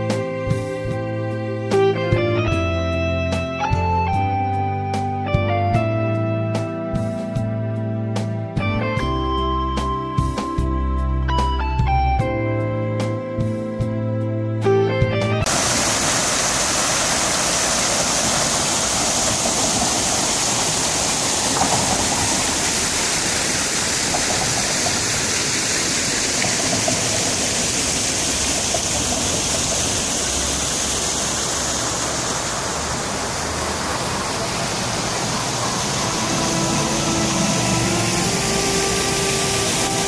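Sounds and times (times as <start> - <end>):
fountain water splashing into basin: 15.5 - 40.0.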